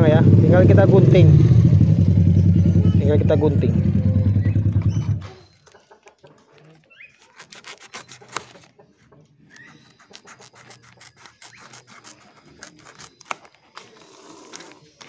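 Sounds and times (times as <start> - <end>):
scissors snipping foil: 7.1 - 8.7, 9.5 - 15.0.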